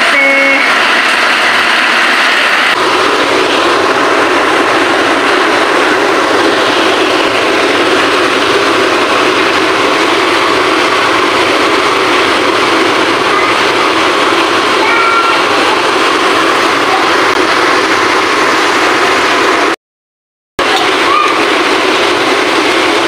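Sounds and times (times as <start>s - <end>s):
pot boiling hard: 0.0s - 19.8s, 20.6s - 23.0s.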